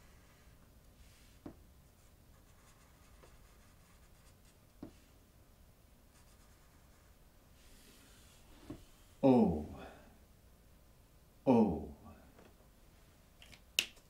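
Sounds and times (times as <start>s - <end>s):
marker scratching on paper: 0.0s - 0.5s, 2.3s - 5.0s, 6.2s - 7.2s.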